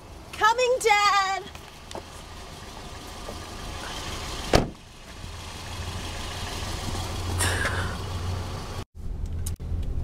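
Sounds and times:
car engine idling: 0.0s - 9.5s
car door slamming: 4.5s - 4.8s.

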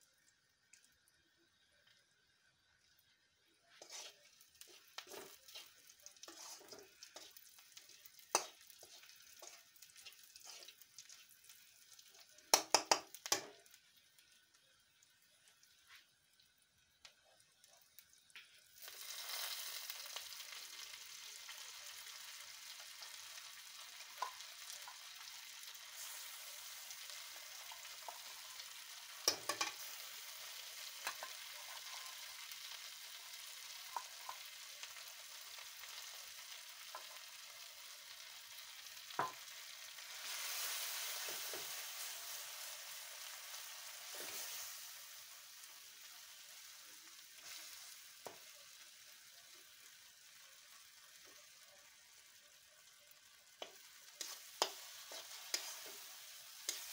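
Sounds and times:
oil sizzling: 0.0s - 56.9s
metal spatula scraping a wok: 3.8s - 7.5s, 8.4s - 11.3s, 31.0s - 32.5s, 44.0s - 44.9s, 54.2s - 56.9s.

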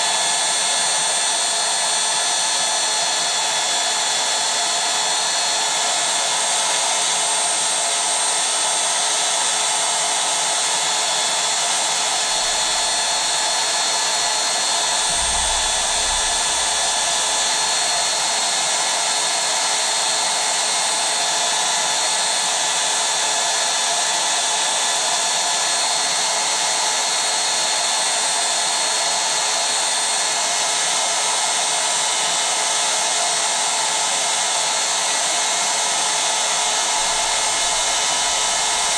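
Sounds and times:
electric air pump whine: 0.0s - 38.9s
low rumble: 15.0s - 17.8s.

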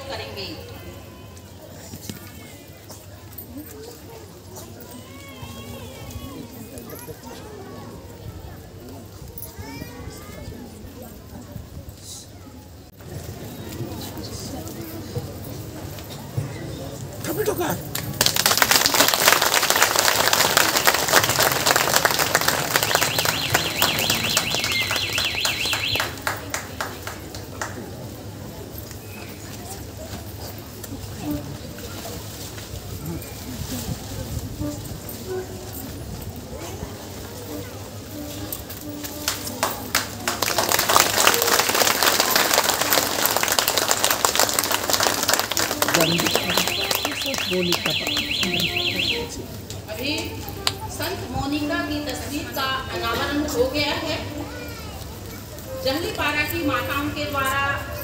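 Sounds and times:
crowd applauding: 17.6s - 28.1s, 39.2s - 49.2s.

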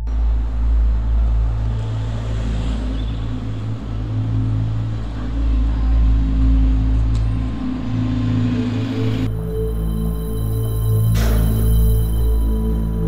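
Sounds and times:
continuous outdoor noise: 0.0s - 13.0s
traffic rumble: 0.0s - 13.0s.

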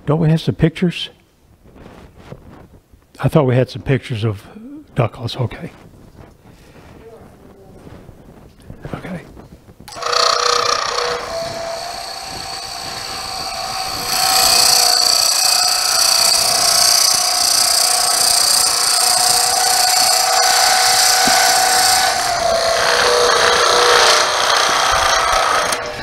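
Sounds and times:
drill bit hissing into wood: 9.9s - 26.0s
lathe motor hum: 9.9s - 26.0s.

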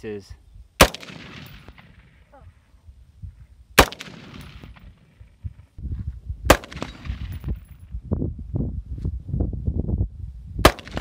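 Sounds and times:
rifle shots echoing: 0.8s - 2.3s, 3.8s - 5.4s, 6.5s - 7.6s, 10.6s - 11.0s.

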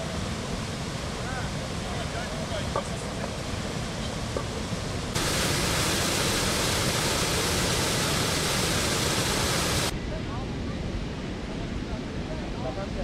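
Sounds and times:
waterfall rushing water: 0.0s - 9.9s.

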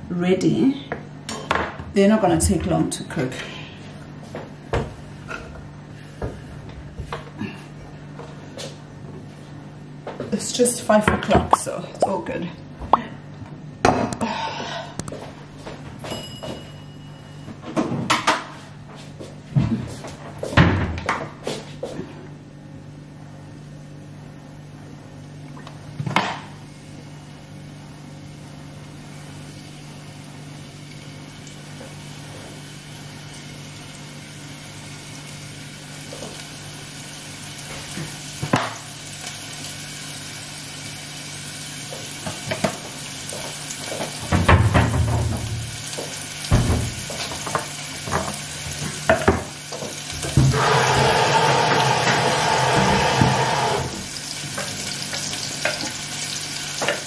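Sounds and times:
pots and pans clattering: 46.5s - 53.4s.

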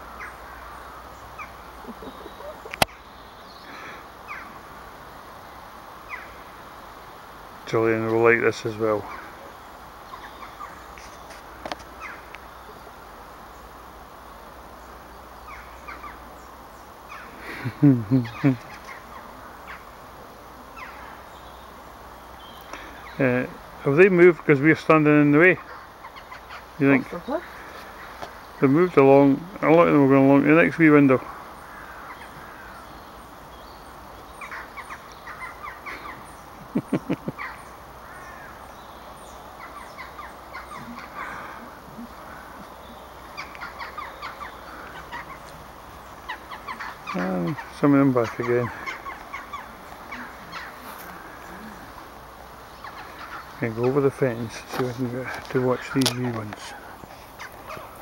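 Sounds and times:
outdoor background noise: 0.0s - 58.0s
louder lower animal calls: 34.3s - 54.2s.

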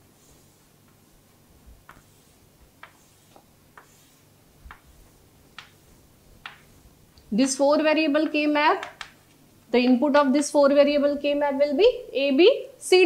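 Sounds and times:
chalk tapping on chalkboard: 0.2s - 6.8s.

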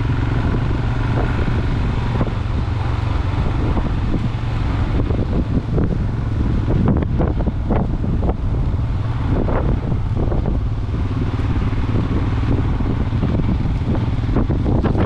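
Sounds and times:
motorcycle engine running: 0.0s - 15.0s
wind on microphone: 0.0s - 15.0s.

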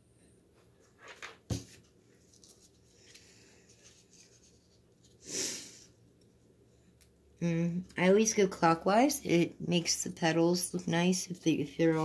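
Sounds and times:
paper rustling and crinkling: 0.8s - 5.2s, 11.3s - 12.0s.

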